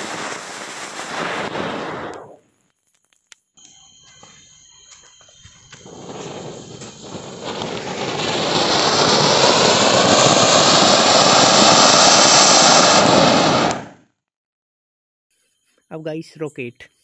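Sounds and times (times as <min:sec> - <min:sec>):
firework fountain hissing: 0:00.0 - 0:02.4, 0:04.2 - 0:13.9.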